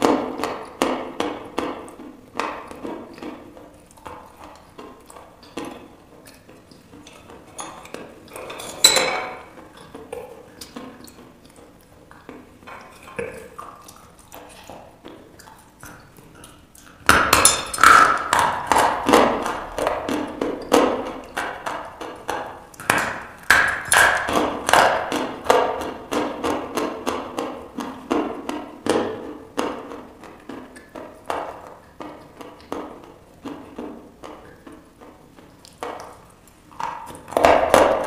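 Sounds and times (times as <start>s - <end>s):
dry crunching chewing: 9.4s - 17.1s.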